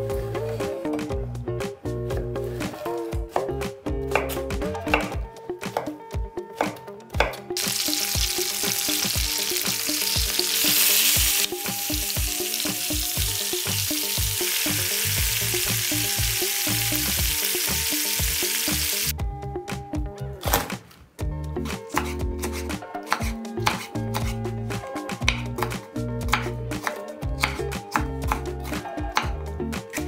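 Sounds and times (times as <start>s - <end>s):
knife chopping on wooden board: 4.2s - 6.0s, 22.0s - 24.4s
chicken sizzling in a pan: 7.6s - 19.1s.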